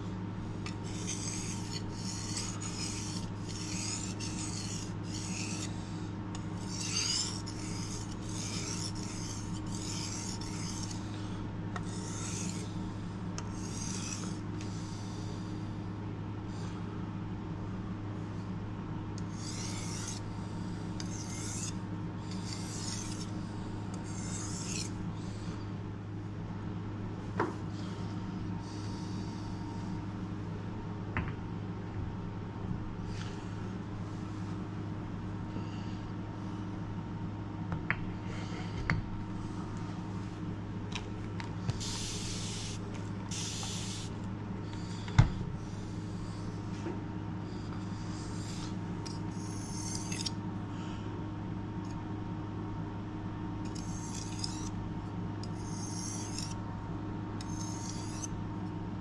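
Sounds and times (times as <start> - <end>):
blade rasping on whetstone: 0.6 - 14.5, 19.2 - 25.0, 41.7 - 44.2, 47.7 - 50.4, 53.7 - 54.8, 55.4 - 56.6, 57.4 - 58.4.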